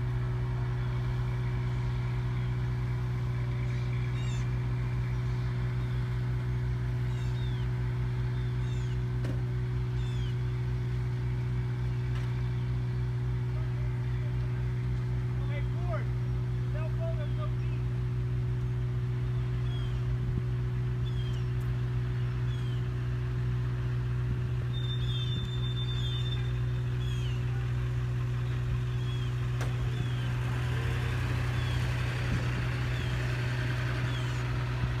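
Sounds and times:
low engine drone: 0.0 - 35.0.

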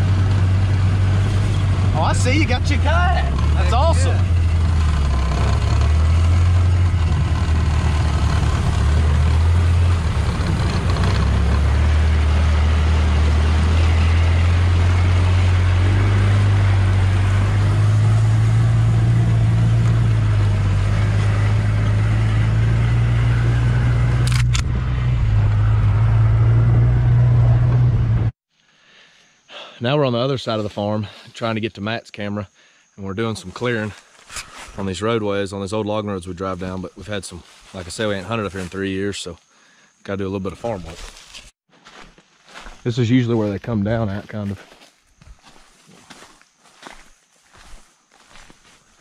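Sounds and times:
vehicle engine drone: 0.0 - 28.4, 33.1 - 39.5.

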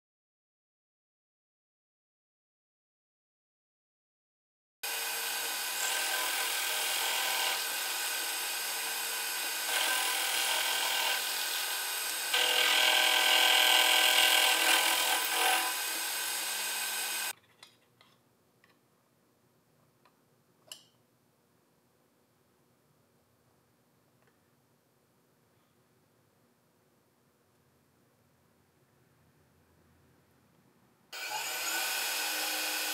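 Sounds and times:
power tool motor whining: 4.9 - 17.3, 31.2 - 32.9.

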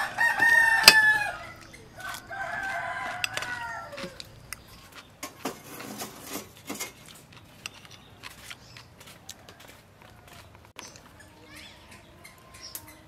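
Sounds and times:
rooster crowing: 0.0 - 4.3, 9.2 - 10.5.

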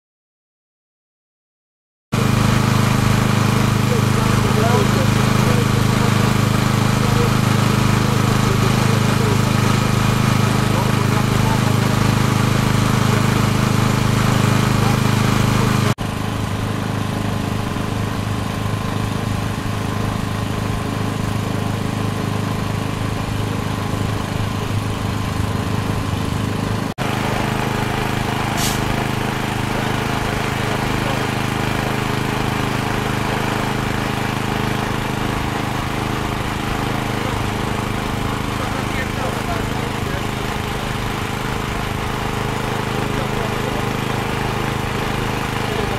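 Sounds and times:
fire engine engines running: 2.2 - 45.9
short hiss: 28.5 - 28.9.

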